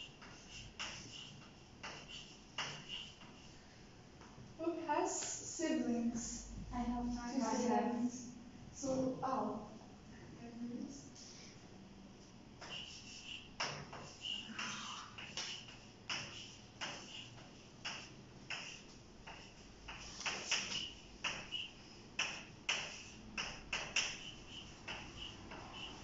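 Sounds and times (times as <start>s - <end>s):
chalk tapping and scratching: 0.0s - 3.6s, 12.6s - 26.0s.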